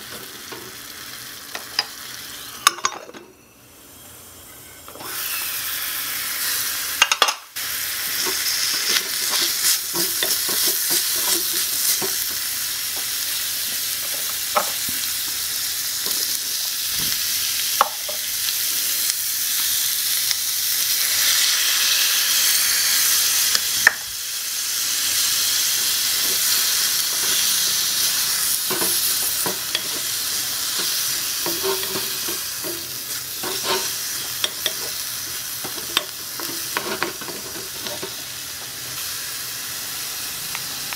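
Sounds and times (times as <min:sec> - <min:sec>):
stir-fry sizzling in a wok: 0:00.0 - 0:40.9
wooden spatula scraping a pan: 0:30.7 - 0:35.0, 0:35.7 - 0:38.2.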